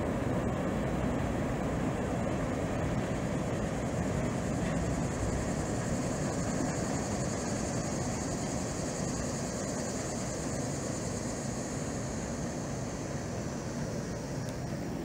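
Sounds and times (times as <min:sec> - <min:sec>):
freight train rumbling: 0:00.0 - 0:09.5
high insect drone: 0:00.0 - 0:15.0.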